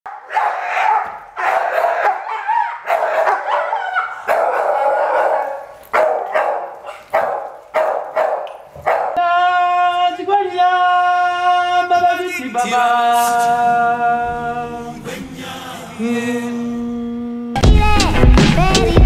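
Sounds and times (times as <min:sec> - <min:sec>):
dog barking aggressively: 0:00.1 - 0:09.2.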